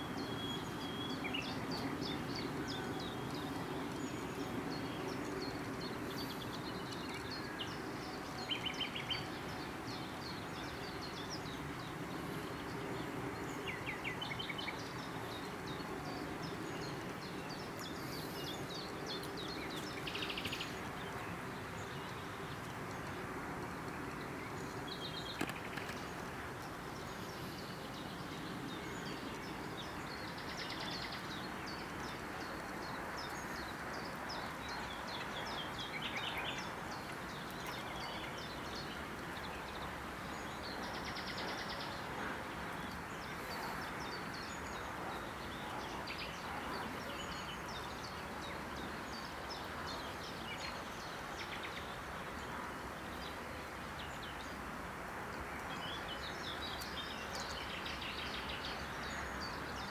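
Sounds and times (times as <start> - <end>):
small birds chirping: 0.0 - 54.6
steady rushing hiss: 0.0 - 59.8.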